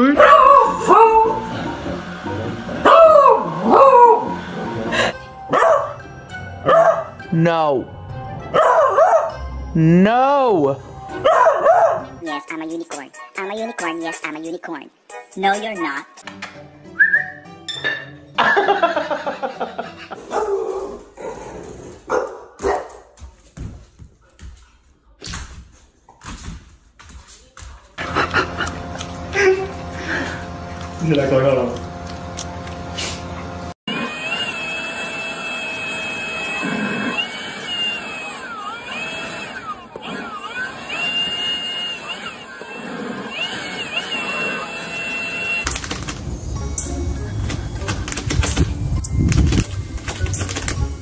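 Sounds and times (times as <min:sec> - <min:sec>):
dog crying: 0:00.0 - 0:01.6, 0:02.8 - 0:05.8
leaf blower motor whine: 0:00.2 - 0:05.4, 0:28.0 - 0:46.5.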